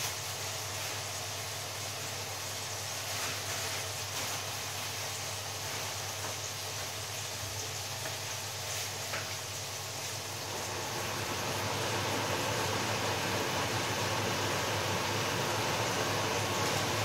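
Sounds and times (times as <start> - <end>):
washing machine drum spinning: 3.6 - 17.0.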